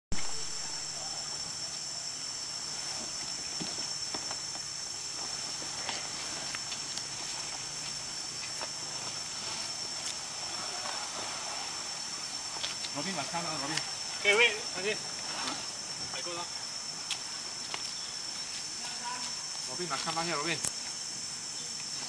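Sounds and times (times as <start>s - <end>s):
insects buzzing: 0.1s - 22.0s
kayak dragged through grass: 2.5s - 16.5s.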